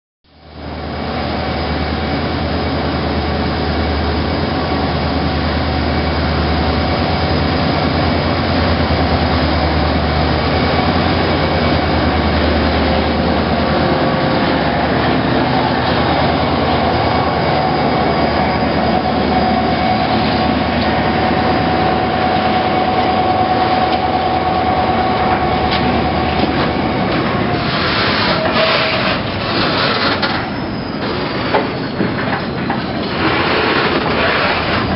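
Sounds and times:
high whine: 0:00.3 - 0:34.9
locomotive engine drone: 0:00.3 - 0:34.9
train wheels clicking over rail joints: 0:25.0 - 0:34.9.

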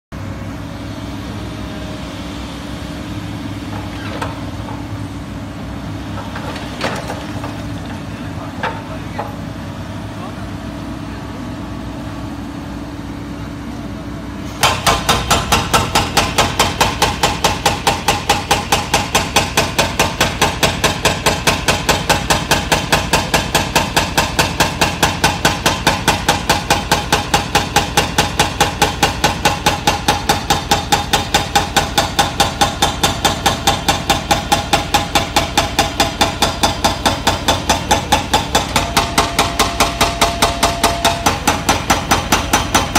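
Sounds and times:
hydraulic breaker hammering concrete: 0:06.0 - 0:09.6, 0:14.6 - 0:42.9.

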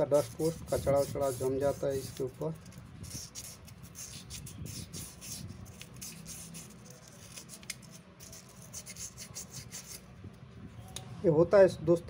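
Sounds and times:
hands rubbing plastic parts: 0:00.2 - 0:10.0.

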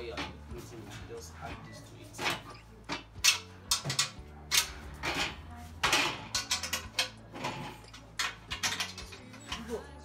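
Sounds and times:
spanner clinking on bolt: 0:02.2 - 0:05.3, 0:05.9 - 0:09.7.

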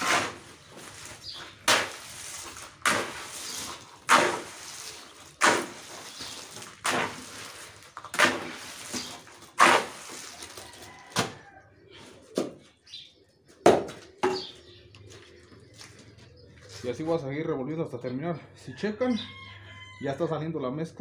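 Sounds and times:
stones rattling: 0:00.0 - 0:11.1
shovel scraping gravel: 0:00.0 - 0:11.2.

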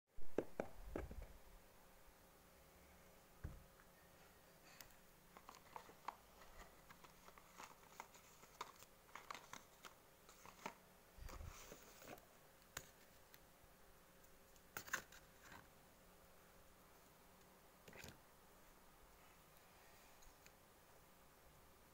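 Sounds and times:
paper rustling: 0:05.4 - 0:13.2.

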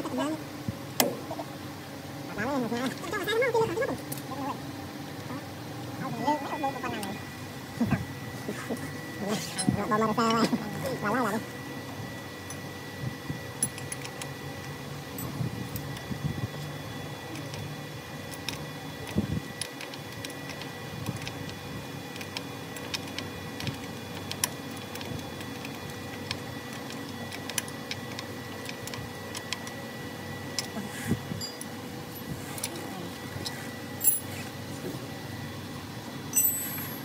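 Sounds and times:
steady hum: 0:00.0 - 0:37.0
metal tool clicks and clinks: 0:31.4 - 0:31.7, 0:34.0 - 0:34.3, 0:36.3 - 0:37.0.

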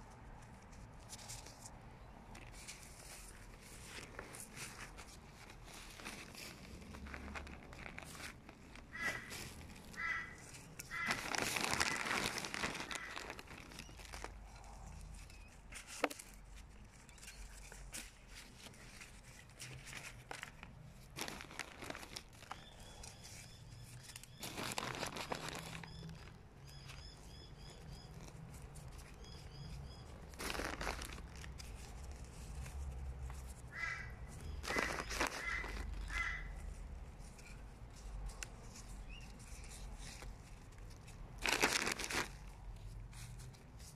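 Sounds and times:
soil rustling and crumbling: 0:01.0 - 0:43.9
birds calling: 0:08.8 - 0:12.0, 0:33.7 - 0:36.6.

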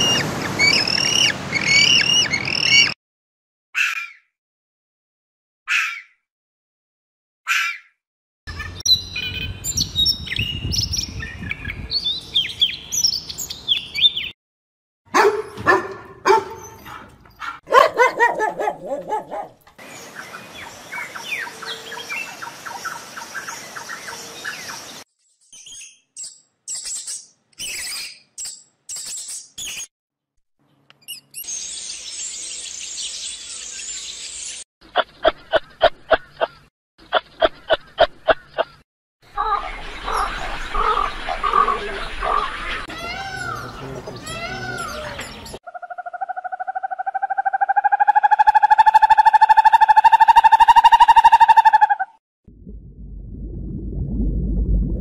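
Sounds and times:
birds chirping and calling: 0:00.1 - 0:03.0, 0:03.8 - 0:04.3, 0:05.7 - 0:06.2, 0:07.5 - 0:14.4, 0:15.2 - 0:29.9, 0:31.0 - 0:52.0
rapid pulsing animal calls: 0:45.7 - 0:52.2.

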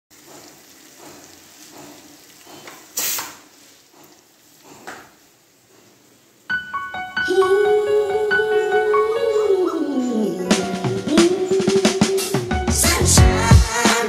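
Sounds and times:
music: 0:06.5 - 0:14.0.

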